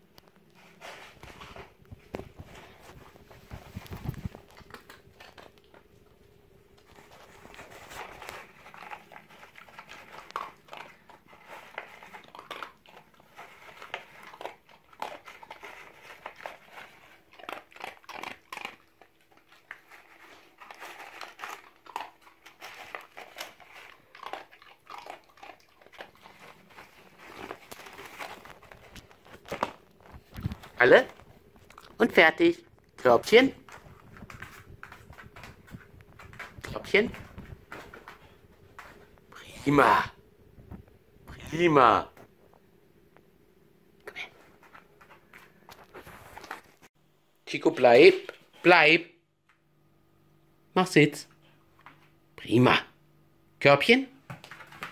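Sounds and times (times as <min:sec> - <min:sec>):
dog chewing crunches: 0:00.3 - 0:39.3.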